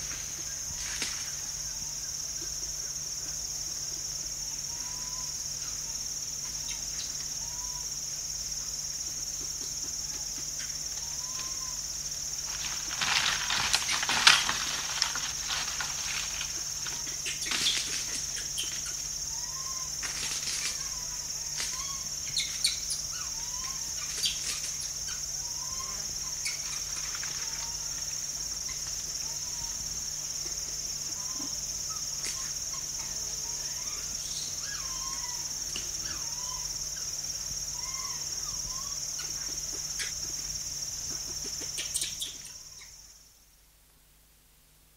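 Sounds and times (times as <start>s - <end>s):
insect buzz: 0.0s - 44.9s
young monkeys whining: 4.5s - 7.9s, 9.6s - 11.8s, 16.4s - 28.0s, 31.0s - 37.1s, 37.7s - 40.5s
monkeys rustling and scuffling: 12.3s - 21.0s, 26.3s - 29.2s.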